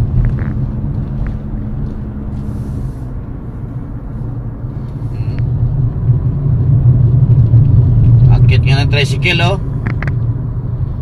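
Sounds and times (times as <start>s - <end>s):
car engine and road noise: 0.0s - 11.0s.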